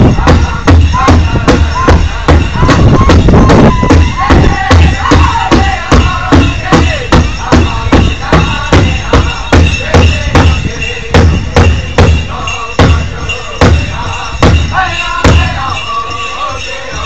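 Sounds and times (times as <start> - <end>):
large drum beating: 0.0 - 15.8
group singing: 0.0 - 17.0.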